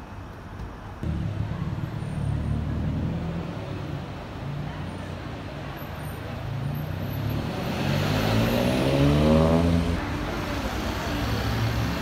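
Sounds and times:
background traffic: 0.0 - 12.0
vehicle accelerating past: 6.9 - 10.0.

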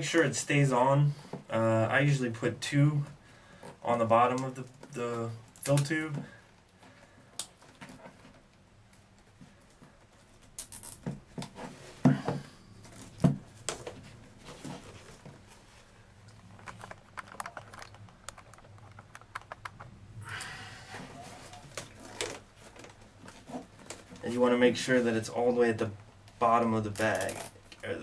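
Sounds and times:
fabric rustling: 12.8 - 19.4
plastic clicks: 16.6 - 19.9.

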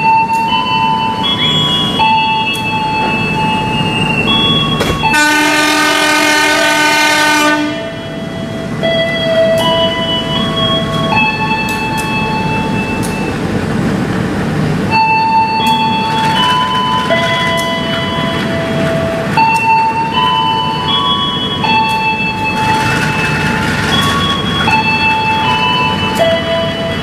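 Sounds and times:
train rumbling past: 0.0 - 27.0
locomotive horn: 4.8 - 8.0.

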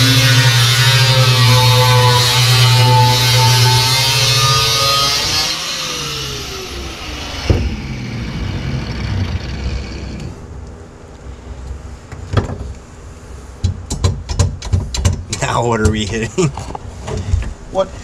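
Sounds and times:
angle grinder cutting sheet steel: 0.0 - 10.3
knocks on metal: 13.6 - 16.2.

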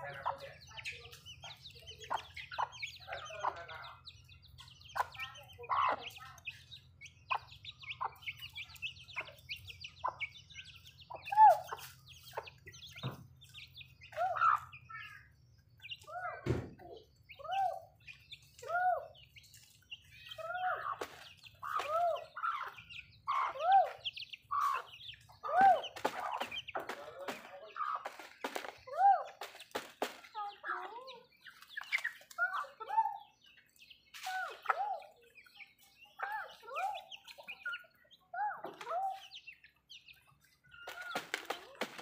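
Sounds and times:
chicks cheeping: 0.0 - 42.0
pecking on concrete: 0.0 - 42.0
single thump: 16.4 - 16.8.

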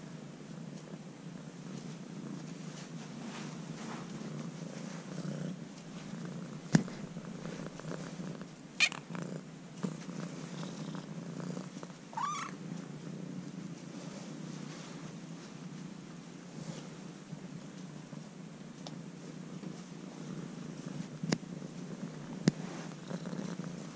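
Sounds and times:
kitten purring: 0.0 - 23.9
kitten crying: 12.2 - 12.5.

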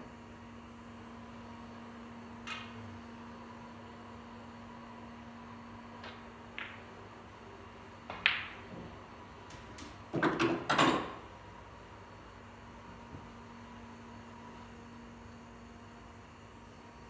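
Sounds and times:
snooker balls clicking: 6.0 - 6.9, 8.1 - 8.8.

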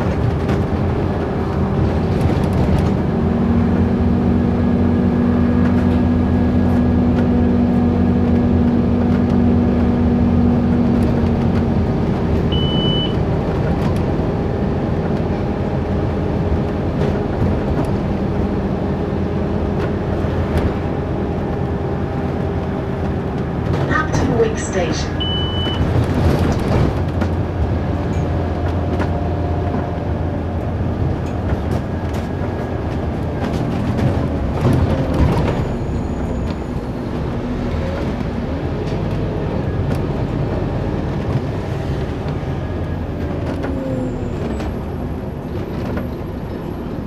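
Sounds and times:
bus diesel engine running: 0.0 - 47.0
short high beep: 24.5 - 25.8.

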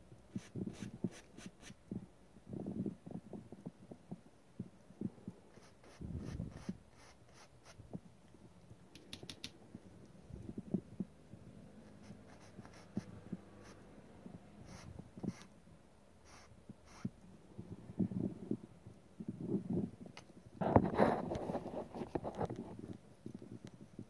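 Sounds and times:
paintbrush strokes on canvas: 0.3 - 1.8, 5.5 - 7.9, 11.8 - 13.9, 14.6 - 15.6, 16.2 - 17.2.

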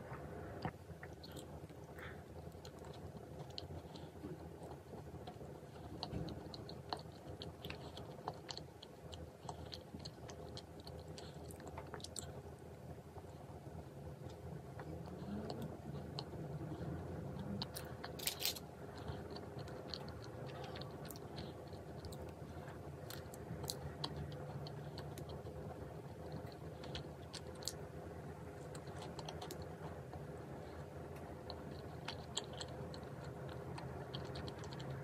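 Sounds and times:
person chewing: 0.0 - 12.6, 14.2 - 35.0
small crunches and clicks: 17.6 - 22.4.

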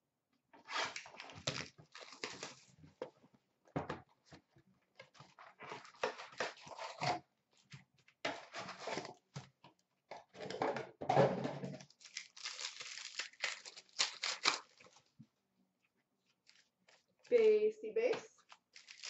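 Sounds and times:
card packs crinkling: 0.7 - 2.8, 11.8 - 15.2, 16.4 - 17.0, 18.4 - 19.0
cardboard box tearing: 0.8 - 2.7, 12.0 - 14.9, 18.8 - 19.0.

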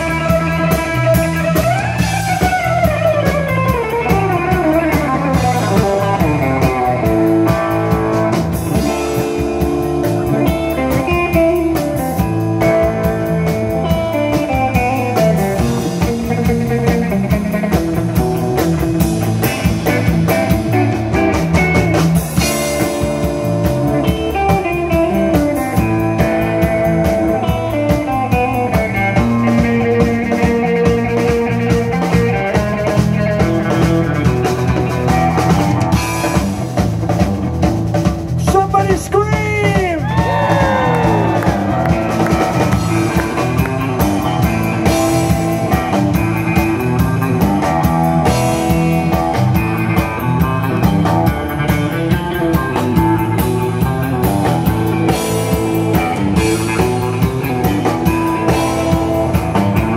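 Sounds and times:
drum kit: 0.0 - 59.9
electric bass: 0.0 - 59.9
electric guitar: 0.0 - 59.9.

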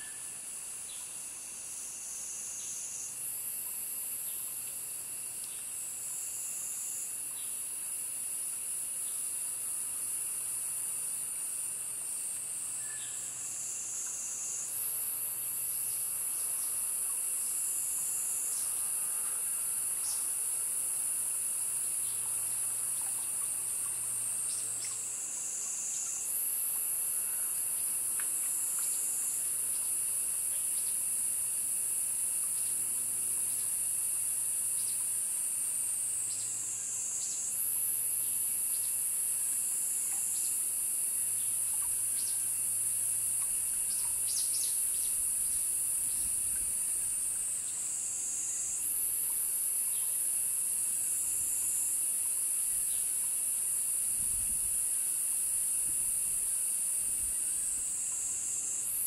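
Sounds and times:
cicadas buzzing: 0.0 - 59.0
faint steady insect tone: 0.0 - 59.0.

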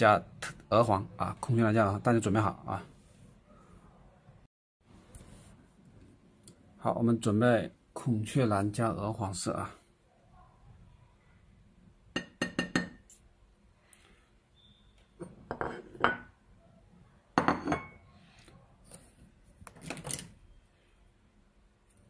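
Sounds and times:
porcelain dishes clinking on table: 15.2 - 16.3, 17.4 - 18.0.

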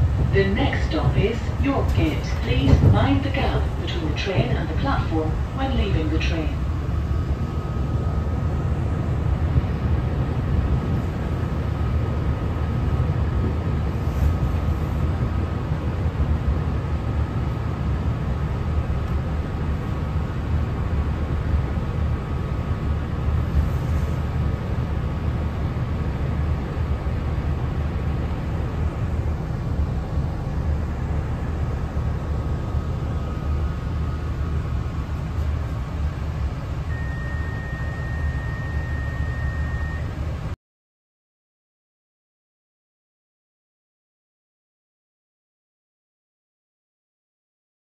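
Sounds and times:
faint steady whine: 0.0 - 40.6
train low rumble: 0.0 - 40.6.

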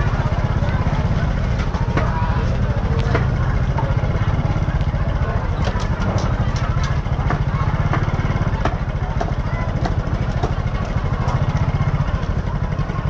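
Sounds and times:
small motorcycle engine running: 0.0 - 13.0
sharp clicks and clatter: 4.8 - 12.5.

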